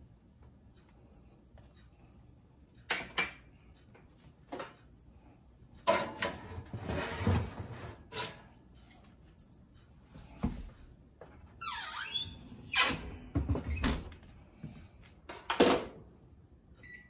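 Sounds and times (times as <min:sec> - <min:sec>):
baking sheet scraping on oven rack: 0:06.2 - 0:08.5.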